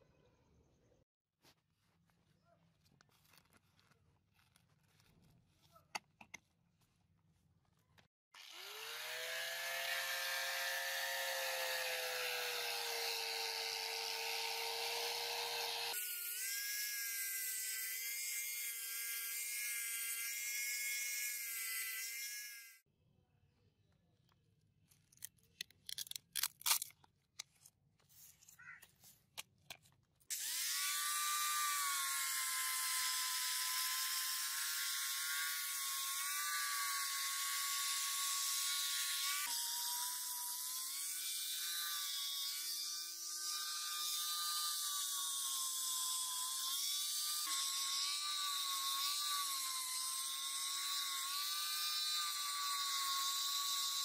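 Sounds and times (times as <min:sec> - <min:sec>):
angle grinder sanding steel: 0:08.4 - 0:22.7.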